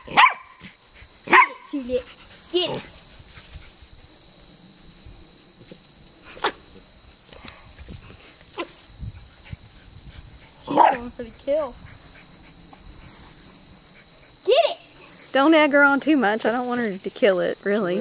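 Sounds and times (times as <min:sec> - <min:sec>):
dog barking: 0:00.0 - 0:01.8, 0:10.6 - 0:11.2
insect chorus trilling: 0:00.0 - 0:18.0.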